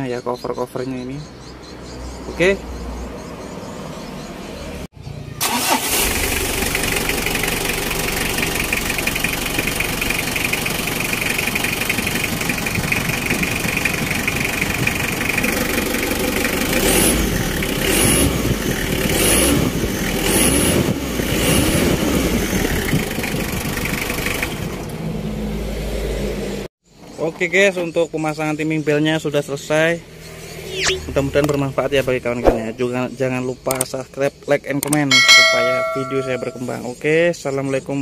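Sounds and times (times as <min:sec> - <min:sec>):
diesel engine idling and revving: 0:01.3 - 0:26.7.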